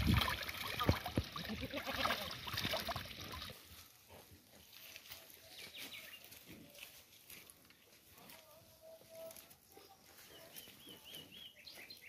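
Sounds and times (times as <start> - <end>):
water splashing into a trough: 0.0 - 3.7.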